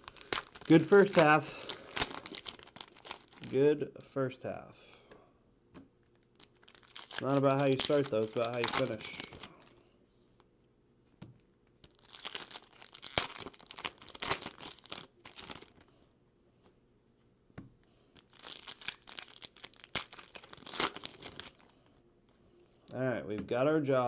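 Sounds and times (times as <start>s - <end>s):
foil wrapper crinkling and tearing: 0.0s - 3.6s, 6.2s - 9.7s, 11.8s - 15.9s, 18.2s - 21.9s.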